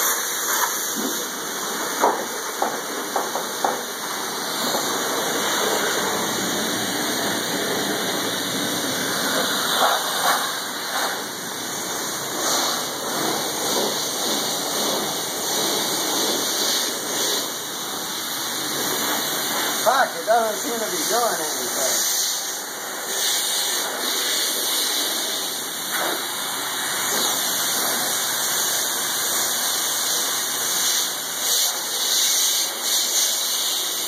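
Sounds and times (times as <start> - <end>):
pressure washer spray hissing: 0.0 - 34.0.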